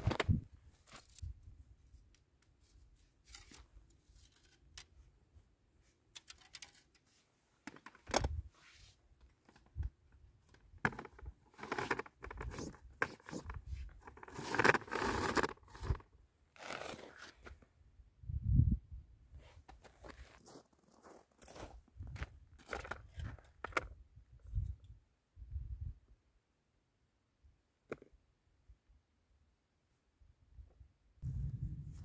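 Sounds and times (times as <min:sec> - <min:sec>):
metal poles clicking and rattling: 0:06.1 - 0:07.1.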